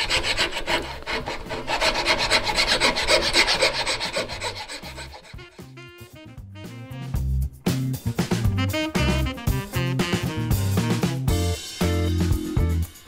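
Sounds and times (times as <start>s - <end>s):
hand file rasping on wood: 0.0s - 6.0s
music: 0.2s - 13.0s.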